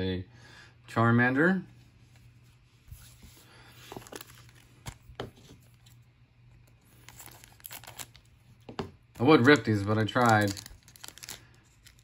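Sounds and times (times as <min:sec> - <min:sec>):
wrappers rustling: 0:03.0 - 0:05.1, 0:06.8 - 0:08.4, 0:09.2 - 0:12.0
sharp clicks and crinkles: 0:09.5 - 0:12.0.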